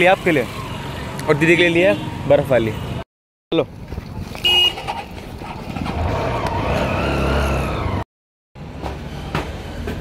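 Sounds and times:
motorbike engine pulling away: 0:04.8 - 0:08.0.

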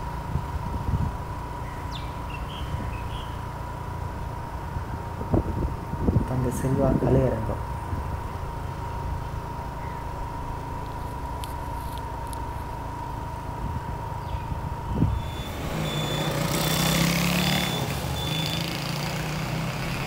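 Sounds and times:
traffic noise: 0:00.0 - 0:20.0
short high beeps: 0:15.1 - 0:18.8.

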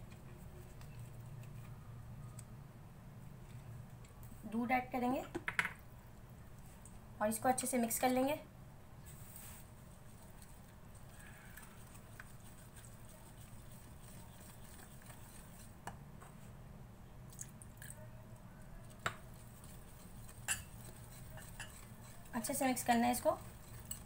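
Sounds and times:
stirring mixture in a bowl: 0:00.0 - 0:02.6, 0:03.2 - 0:04.4, 0:09.1 - 0:16.4, 0:17.6 - 0:24.0.

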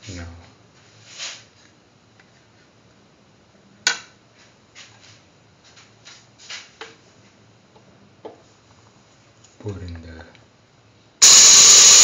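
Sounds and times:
soft taps and rustles: 0:04.3 - 0:10.0.

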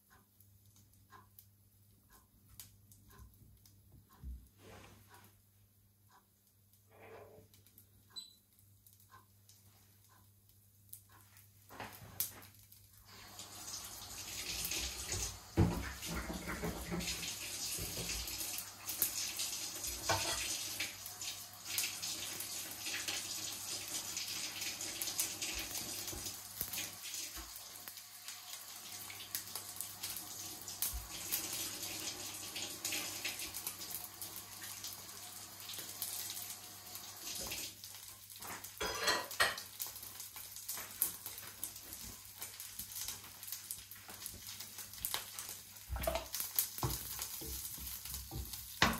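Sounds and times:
tap running into a sink: 0:14.5 - 0:18.4, 0:25.4 - 0:27.6, 0:45.9 - 0:48.9
knocks in a sink: 0:15.6 - 0:17.2, 0:48.4 - 0:48.9.

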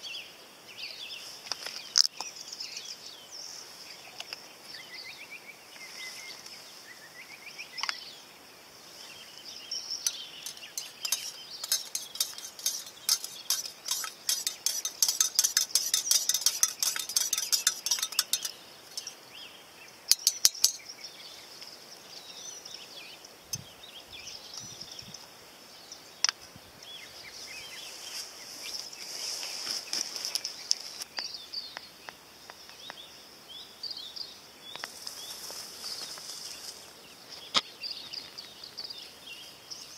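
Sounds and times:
high insect drone: 0:08.0 - 0:22.2
metal spoon clinking in mug: 0:10.1 - 0:19.2, 0:20.1 - 0:20.8
spoon tapping mug rim: 0:10.1 - 0:19.2, 0:20.1 - 0:20.8.

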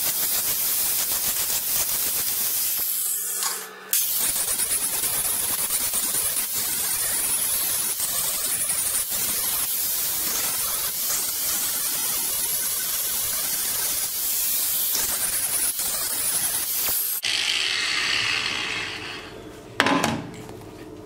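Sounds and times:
grinder running free: 0:15.8 - 0:19.3
angle grinder grinding metal: 0:17.1 - 0:19.3.

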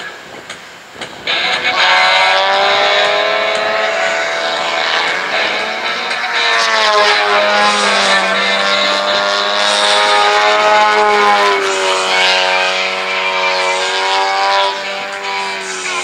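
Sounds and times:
model airplane engine running: 0:01.2 - 0:16.0.

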